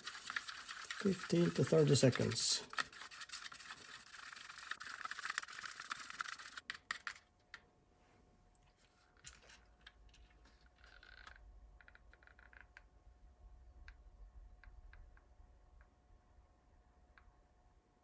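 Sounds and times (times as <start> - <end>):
stick scraping plastic cup: 0.0 - 7.2.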